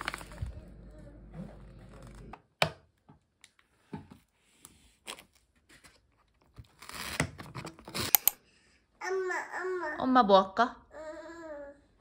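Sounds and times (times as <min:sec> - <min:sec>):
paper lid tearing rustle: 0:06.7 - 0:08.2.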